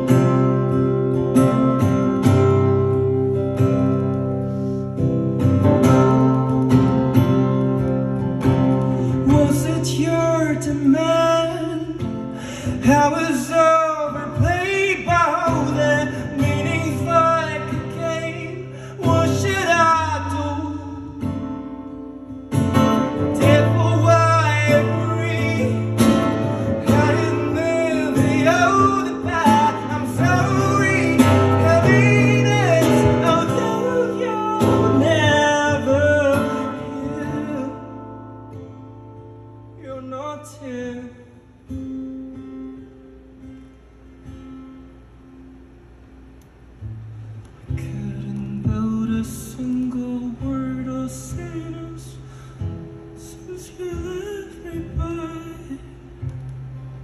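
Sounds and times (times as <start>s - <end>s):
acoustic guitar: 0.0s - 57.0s
man singing: 9.1s - 21.6s, 23.0s - 38.3s, 39.7s - 41.4s, 47.7s - 52.6s, 53.2s - 56.1s.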